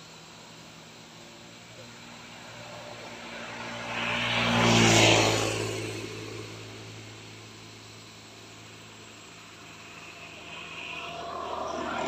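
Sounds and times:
vehicle driving past: 2.2s - 12.0s.

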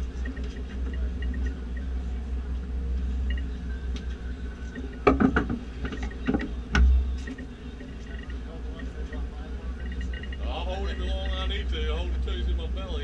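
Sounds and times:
boat engine low rumble: 0.0s - 13.0s
sharp knocks and clatters: 4.8s - 8.4s.

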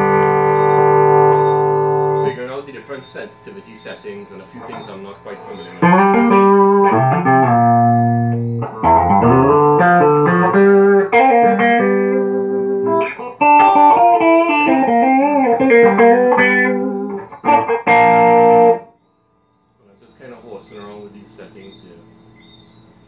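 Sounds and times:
electric guitar chords and phrases: 0.0s - 2.4s, 4.6s - 18.9s.

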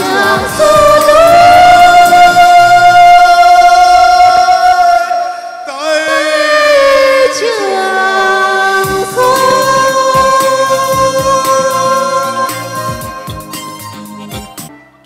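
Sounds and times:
instrumental accompaniment: 0.0s - 4.5s, 8.8s - 15.0s
person singing: 0.0s - 13.8s.

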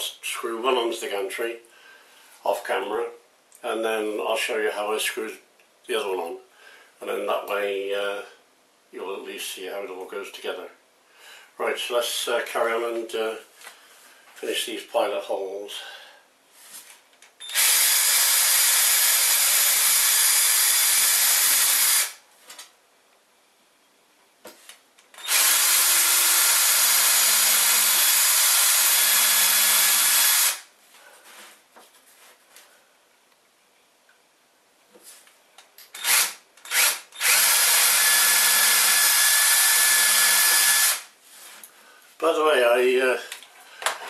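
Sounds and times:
cordless drill boring into board: 17.4s - 22.2s, 25.2s - 30.7s, 36.0s - 41.1s.

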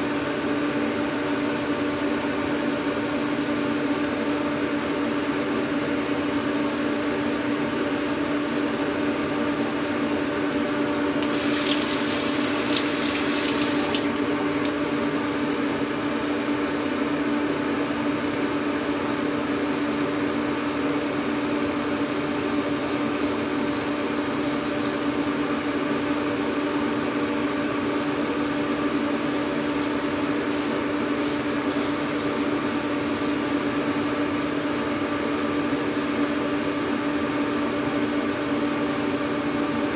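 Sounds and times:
tap running: 11.2s - 15.1s
razor scraping: 19.4s - 25.0s, 27.8s - 33.4s.

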